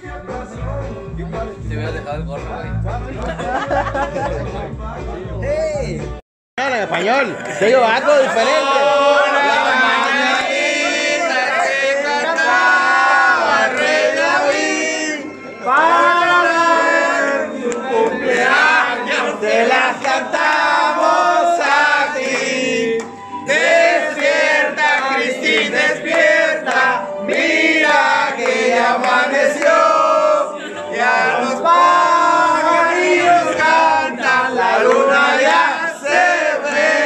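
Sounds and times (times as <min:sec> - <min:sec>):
voices singing with music: 0:00.0 - 0:06.2, 0:07.0 - 0:37.0
crowd chatter: 0:25.8 - 0:37.0.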